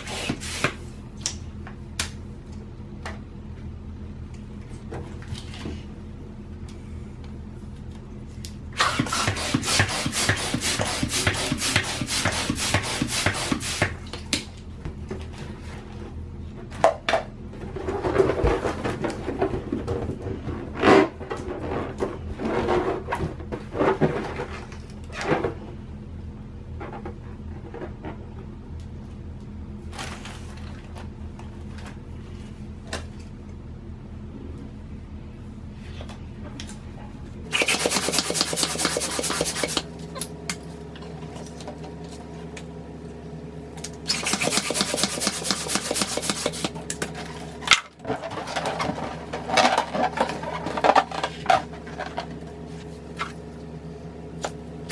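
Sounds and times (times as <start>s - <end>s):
hand pump inflating balloon: 8.8s - 14.0s, 37.5s - 39.8s, 44.1s - 46.8s.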